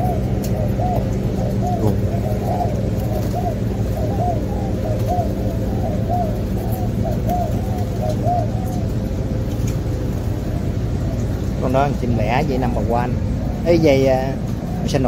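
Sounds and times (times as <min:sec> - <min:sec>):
doves cooing: 0:00.0 - 0:15.0
steady low hum: 0:00.0 - 0:15.0.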